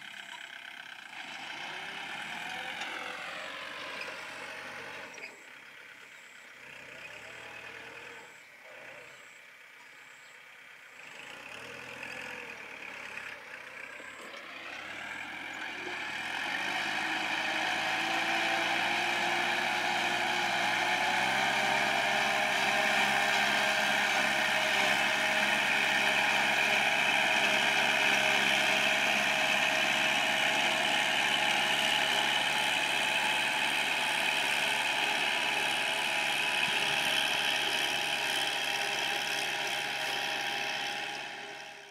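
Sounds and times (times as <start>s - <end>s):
tractor diesel engine under load: 0.0s - 41.9s.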